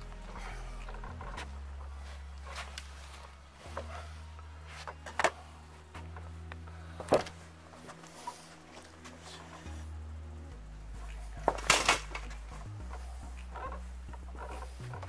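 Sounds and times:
low steady hum: 0:00.0 - 0:15.0
handling knocks and clicks: 0:11.1 - 0:15.0.

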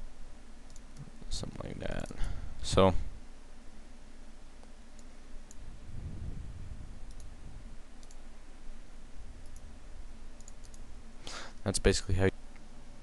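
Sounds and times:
microphone hiss: 0:00.0 - 0:13.0
computer mouse clicks: 0:00.7 - 0:01.1, 0:04.6 - 0:05.6, 0:07.1 - 0:07.3, 0:08.0 - 0:08.2, 0:09.4 - 0:09.7, 0:10.4 - 0:10.8.

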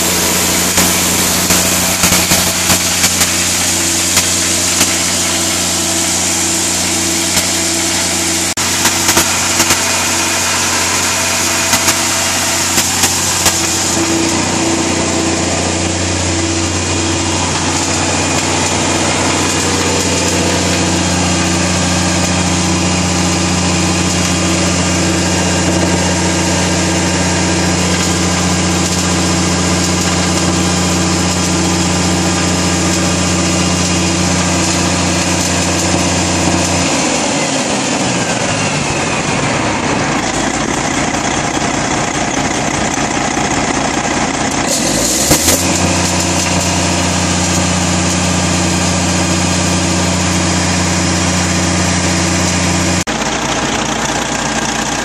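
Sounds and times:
diesel generator engine running: 0:00.0 - 0:55.0.

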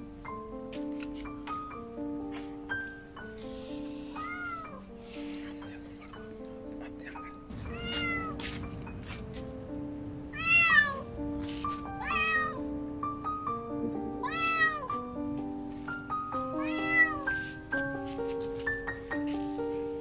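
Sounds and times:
background music with held notes: 0:00.0 - 0:20.0
kitten meowing: 0:04.1 - 0:04.8, 0:07.1 - 0:08.4, 0:10.3 - 0:11.1, 0:12.0 - 0:12.6, 0:14.2 - 0:15.0, 0:16.4 - 0:17.4.

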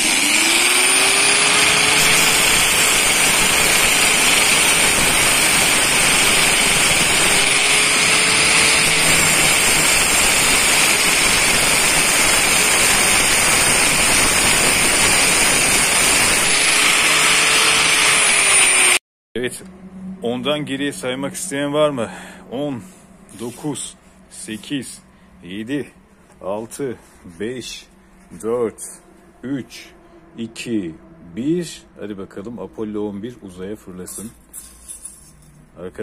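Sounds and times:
angle grinder cutting steel: 0:00.0 - 0:19.0.

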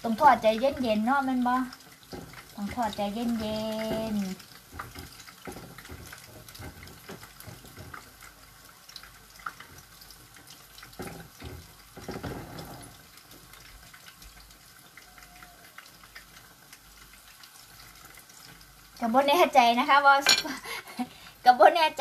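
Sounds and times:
fritters sizzling in hot oil: 0:00.0 - 0:22.0.

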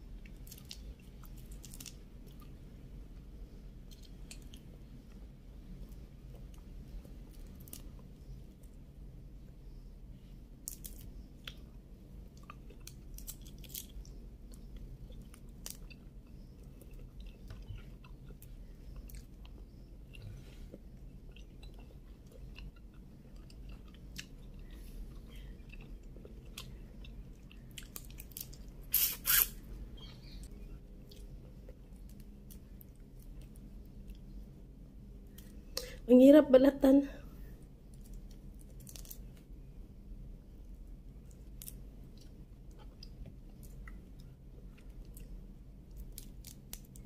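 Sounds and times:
shrimp shells crackling while peeled: 0:00.3 - 0:02.0, 0:12.8 - 0:14.2, 0:27.6 - 0:29.6, 0:38.0 - 0:39.3, 0:45.9 - 0:47.0
chewing: 0:12.4 - 0:28.7.

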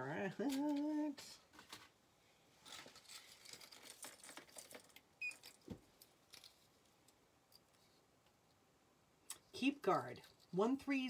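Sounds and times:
chain necklace clinking: 0:02.7 - 0:05.6.

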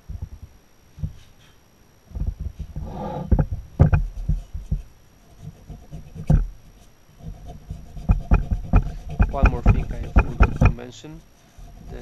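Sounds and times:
metal part scraping on workbench: 0:02.8 - 0:03.4
dull knocks on wooden workbench: 0:08.0 - 0:10.8.

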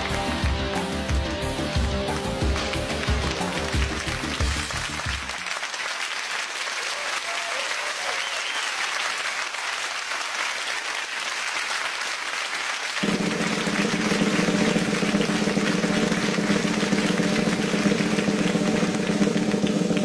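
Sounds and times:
music beat: 0:00.0 - 0:05.3, 0:13.0 - 0:20.0
music: 0:00.0 - 0:05.7, 0:13.0 - 0:20.0
audience applauding: 0:00.0 - 0:20.0.

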